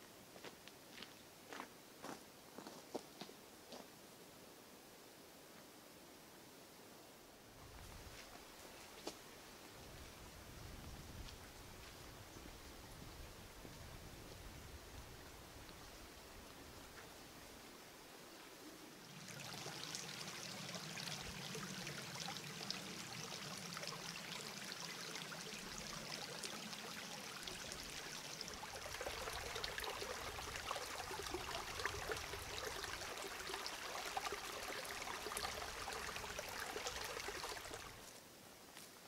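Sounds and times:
brook trickling over stones: 19.0 - 38.2.

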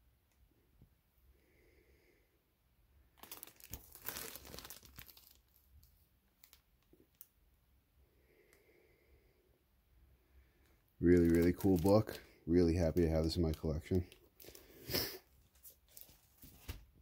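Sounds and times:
plastic bag crinkling: 3.2 - 7.2, 11.0 - 16.9.

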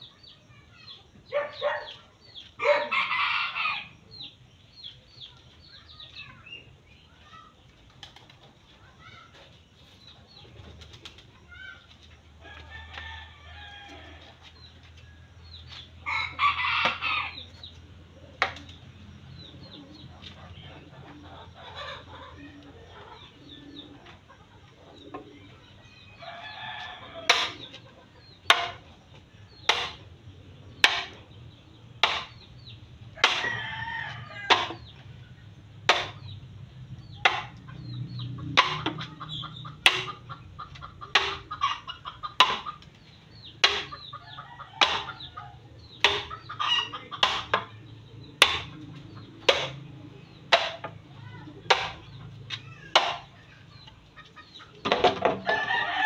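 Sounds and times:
chickens clucking: 0.0 - 56.0
rooster crowing: 2.6 - 4.0, 16.0 - 17.4, 26.1 - 27.6, 33.3 - 34.8, 55.4 - 56.0
tool striking bamboo pole: 28.5 - 28.8, 29.7 - 30.0, 30.8 - 31.2, 32.0 - 32.4, 33.2 - 33.5, 34.5 - 34.8, 35.8 - 36.2, 37.2 - 37.6, 38.5 - 39.1, 39.8 - 40.3, 41.1 - 41.5, 42.4 - 42.7, 43.6 - 44.0, 44.8 - 45.2, 46.0 - 46.4, 47.2 - 47.7, 48.4 - 48.7, 49.5 - 49.8, 50.5 - 51.0, 51.7 - 52.0, 53.0 - 53.3.

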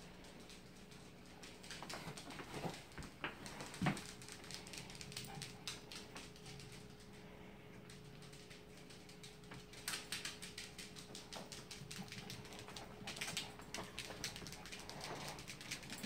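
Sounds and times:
faint steady hum: 0.0 - 16.0
paws clicking on tile floor: 0.0 - 16.0.

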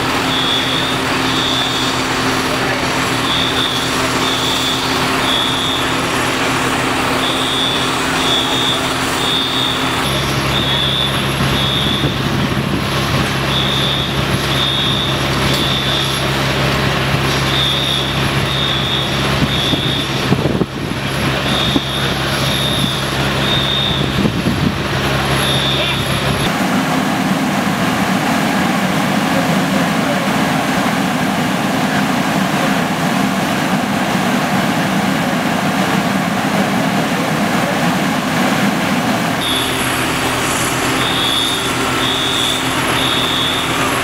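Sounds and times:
diesel engine running: 0.0 - 44.0
high electronic beeps: 0.2 - 12.2, 39.4 - 44.0.

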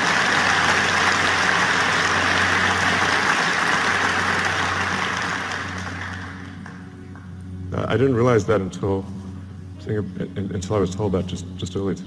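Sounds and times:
large audience applauding: 0.0 - 7.3.

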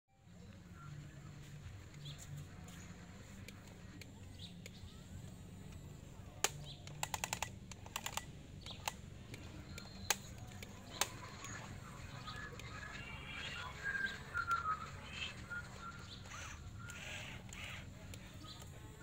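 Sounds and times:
birds chirping: 0.2 - 19.0
toy excavator plastic clicks: 5.6 - 13.5, 15.7 - 19.0.

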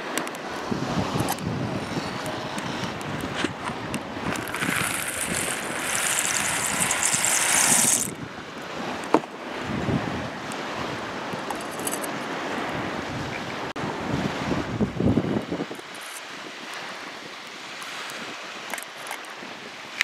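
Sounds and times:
surf hiss: 0.0 - 11.4, 12.1 - 20.0
wind: 0.0 - 20.0
pasta shells poured into pot: 4.3 - 8.2.

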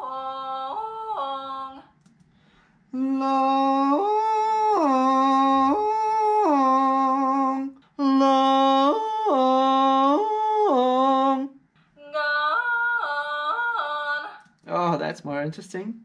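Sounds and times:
person yodeling: 3.0 - 14.3.

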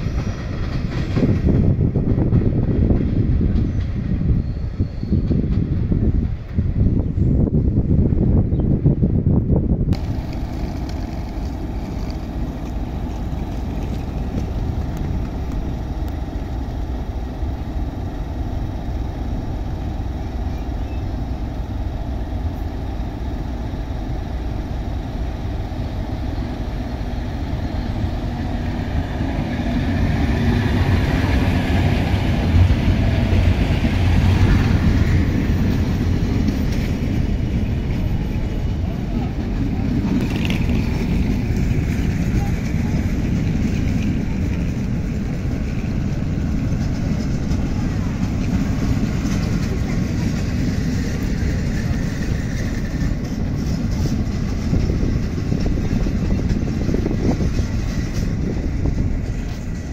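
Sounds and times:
train rumble: 0.0 - 59.9
wheels on rails: 9.9 - 21.3, 24.4 - 59.9.

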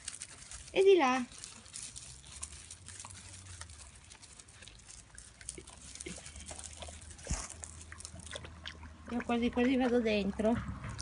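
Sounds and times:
small wet clicks: 0.0 - 11.0
puppy lapping water: 2.9 - 11.0.

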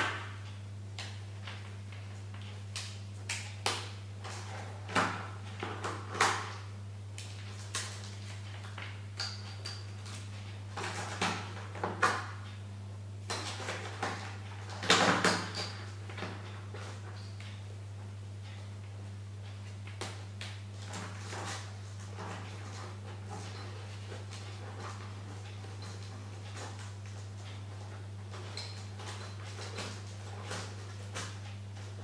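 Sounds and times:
steady low hum: 15.6 - 32.0.

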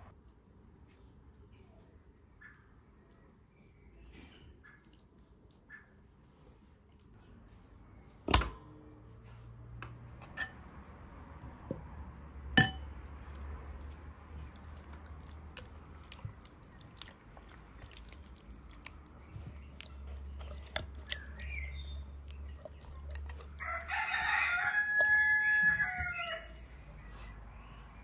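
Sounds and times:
rooster crowing: 23.6 - 26.7.

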